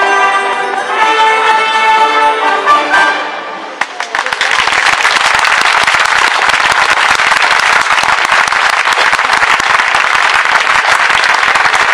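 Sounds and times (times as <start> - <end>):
large crowd applauding: 3.8 - 11.9.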